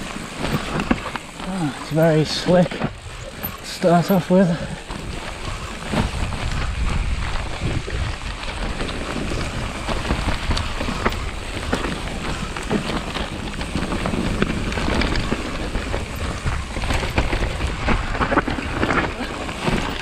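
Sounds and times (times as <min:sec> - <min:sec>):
bike rattling over bumps: 0:00.0 - 0:20.0
tyres rumbling: 0:00.0 - 0:20.0
wind on microphone: 0:04.6 - 0:20.0.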